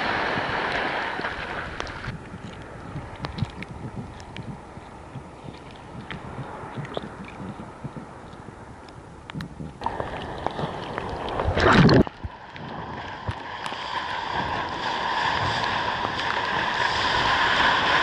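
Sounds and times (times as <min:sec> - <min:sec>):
loud surge of water: 0:00.0 - 0:03.6, 0:09.8 - 0:18.0
whitewater rushing and splashing: 0:00.0 - 0:03.6, 0:09.8 - 0:18.0.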